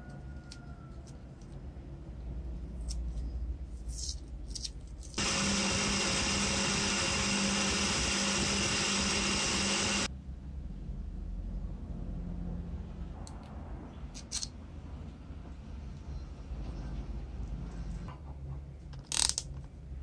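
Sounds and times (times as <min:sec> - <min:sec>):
electric buffing wheel humming: 0:05.2 - 0:10.1
small metal parts clicking: 0:14.1 - 0:14.6, 0:19.0 - 0:19.6.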